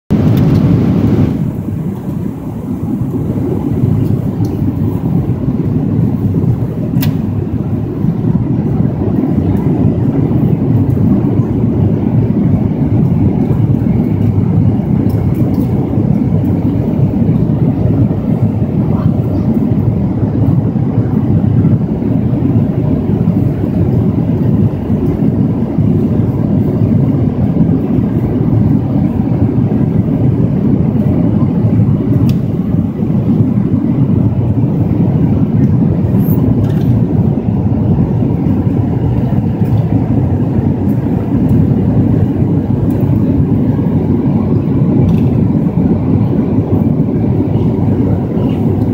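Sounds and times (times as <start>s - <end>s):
airliner cabin noise: 0.1s - 48.9s.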